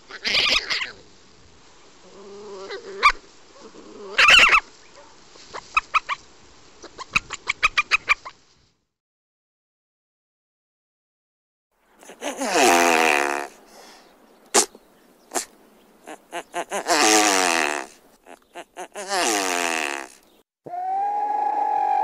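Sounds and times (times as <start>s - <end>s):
bird breathy calls: 13.4s - 16.9s.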